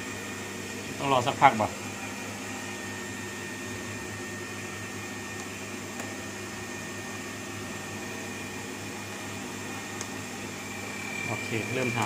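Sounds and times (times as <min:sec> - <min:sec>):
refrigerator compressor humming: 0:00.0 - 0:12.0
faint high whine: 0:10.0 - 0:12.0.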